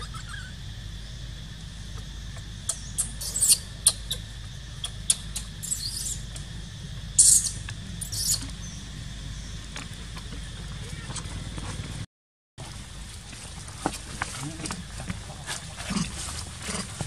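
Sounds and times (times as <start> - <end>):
baby monkey squeaking: 0.0 - 0.6, 2.6 - 6.4, 7.2 - 8.5.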